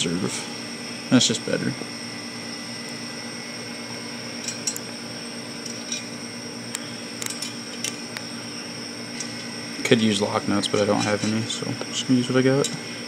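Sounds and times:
steady background hum: 0.0 - 13.0
metal washers and nuts clinking: 4.4 - 4.8, 5.6 - 6.1, 7.2 - 8.0, 10.6 - 11.6.

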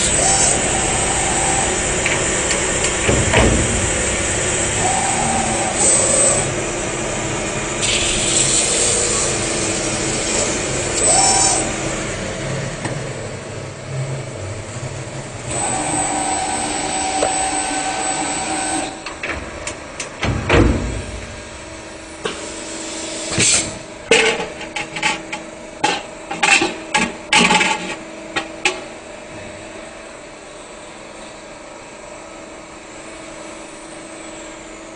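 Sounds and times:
metal spinning machine running: 0.0 - 20.2
whine from metal: 0.0 - 31.4.

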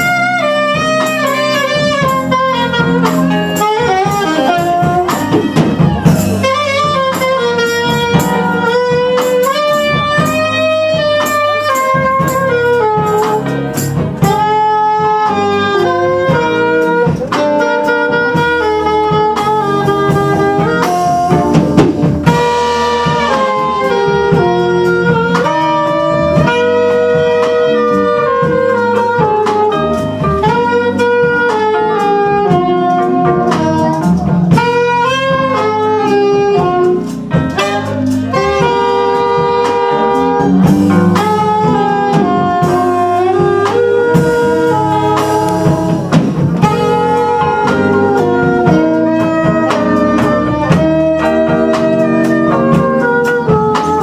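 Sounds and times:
bass guitar: 0.0 - 54.0
drums: 0.0 - 54.0
saxophones playing jazzy melody: 0.0 - 54.0.

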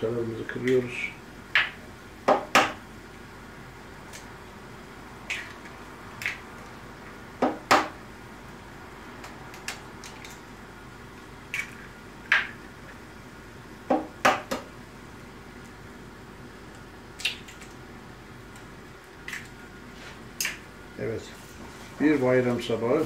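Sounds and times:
eggshells tapping as eggs crack: 1.5 - 2.8, 5.2 - 6.5, 9.2 - 10.4, 11.5 - 12.6, 17.1 - 17.8, 18.5 - 19.6.

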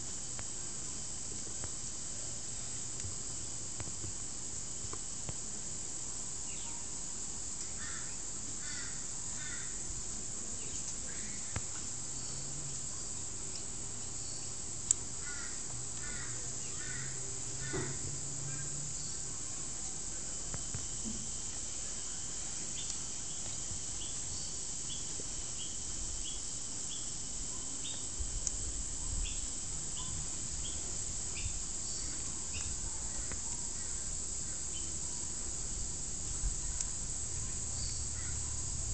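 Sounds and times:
steady hiss: 0.0 - 38.9
faint bird chirps: 6.4 - 6.9, 29.0 - 35.3.

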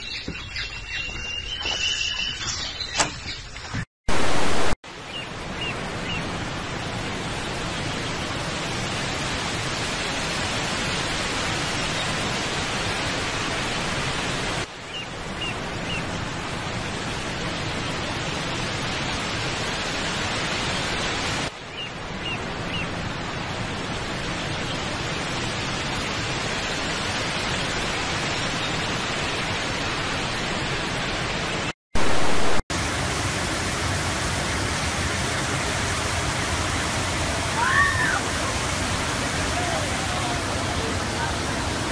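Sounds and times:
loud burst of tv static: 4.1 - 4.8, 32.0 - 32.6
waterfall rushing: 4.1 - 4.8, 25.0 - 41.9
steady rushing noise: 4.1 - 41.9.

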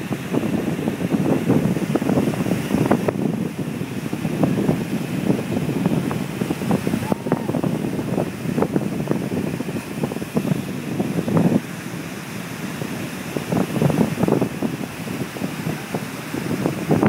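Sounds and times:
ocean surf breaking on rocks: 0.0 - 17.0
wind buffeting microphone: 0.0 - 17.0.

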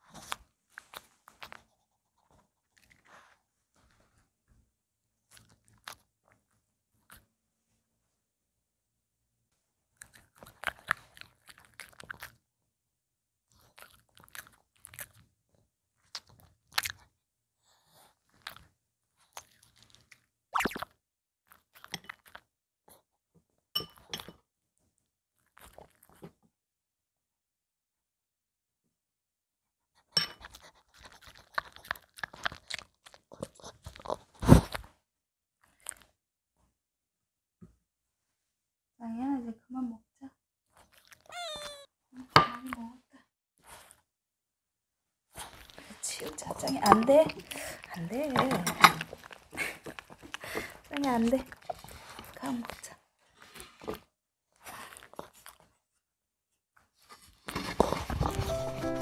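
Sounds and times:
dog crunching a treat: 10.0 - 12.4, 13.5 - 15.3, 16.0 - 17.1, 17.9 - 20.9, 25.4 - 26.3, 30.4 - 34.9, 35.6 - 36.1, 40.7 - 41.7, 47.2 - 54.0, 54.6 - 55.7, 57.0 - 58.9.

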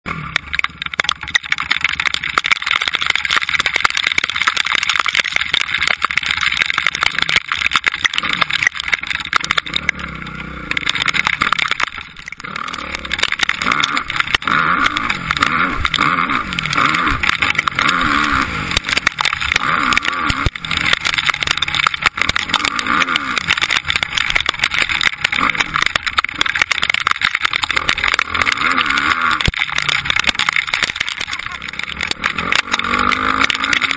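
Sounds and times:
motocross bike engine revving: 0.1 - 33.9.

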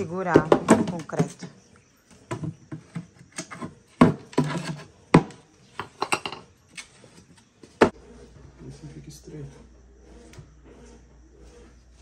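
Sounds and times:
rough scrape: 6.7 - 12.0.

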